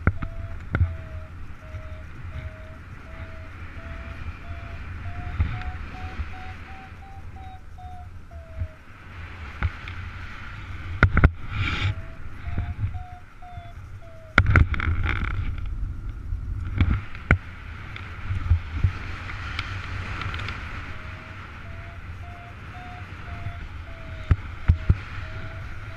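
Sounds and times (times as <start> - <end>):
variometer short beeps: 0.0 - 8.8
wind rushing over microphone: 0.0 - 25.9.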